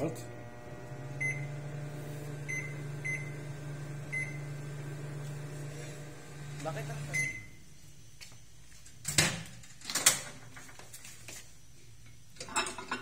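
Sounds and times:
microwave oven humming: 0:00.0 - 0:07.8
microwave beep: 0:00.4 - 0:07.6.

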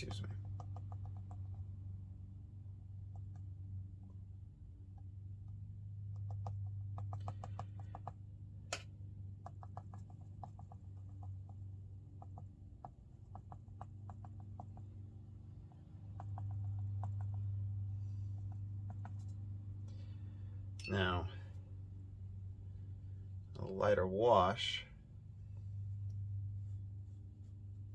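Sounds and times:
brush tapping on paper: 0:00.0 - 0:01.9, 0:03.0 - 0:03.6, 0:04.9 - 0:20.2
steady low hum: 0:00.0 - 0:27.9.

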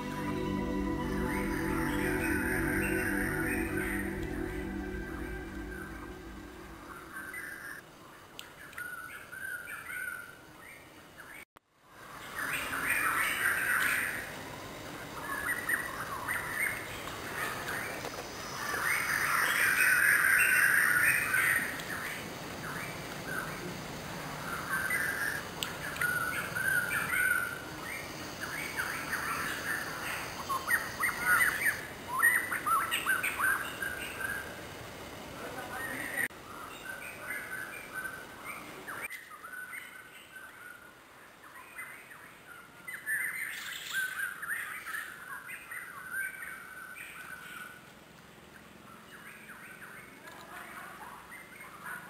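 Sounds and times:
birds chirping: 0:00.0 - 0:07.8.

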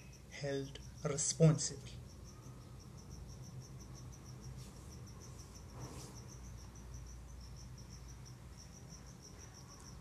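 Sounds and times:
faint cricket chirping: 0:00.0 - 0:10.0.

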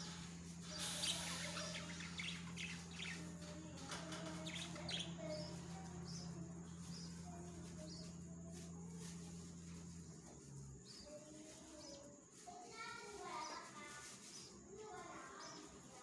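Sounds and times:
budgerigars chirping: 0:00.0 - 0:03.5, 0:04.3 - 0:07.1
raspy bird calls: 0:00.0 - 0:07.2.

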